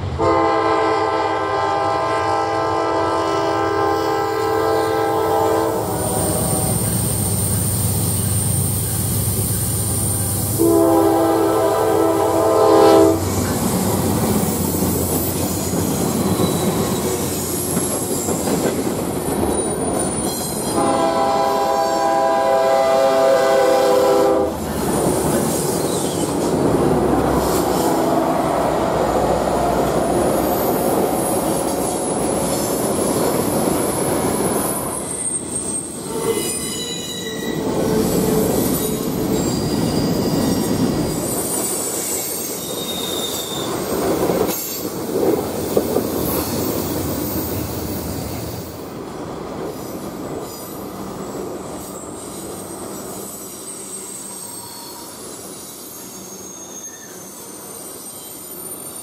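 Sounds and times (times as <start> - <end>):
freight cars rumbling on rails: 0.0 - 55.5
diesel locomotive engines: 0.0 - 59.0
locomotive horn blast: 0.1 - 6.9, 10.6 - 13.3, 20.7 - 24.6
wheel squeal: 13.3 - 18.7, 34.6 - 43.9, 52.2 - 59.0.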